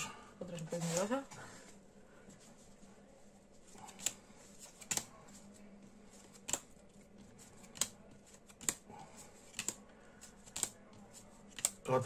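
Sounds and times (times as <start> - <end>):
trading cards snapping: 3.9 - 5.2, 6.2 - 6.8, 7.6 - 8.9, 9.5 - 10.8, 11.5 - 11.8.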